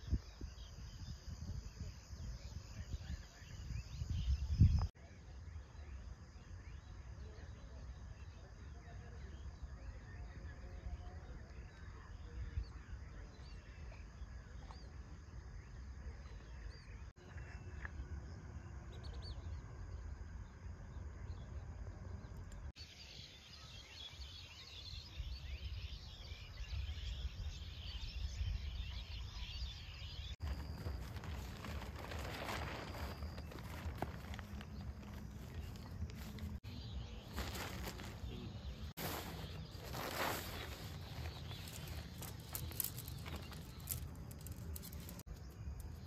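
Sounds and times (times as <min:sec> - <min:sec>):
birds calling: 0:22.8 - 0:45.6.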